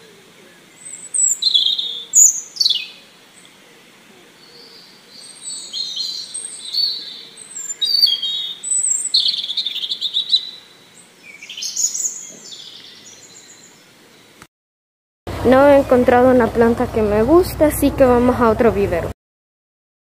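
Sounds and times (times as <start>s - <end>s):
birds chirping and twittering: 0.0s - 14.5s.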